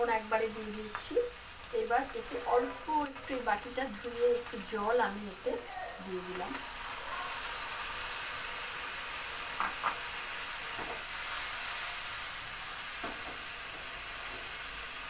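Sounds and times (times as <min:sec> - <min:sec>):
oil sizzling in a wok: 0:00.0 - 0:15.0
wok knocks: 0:13.0 - 0:13.4.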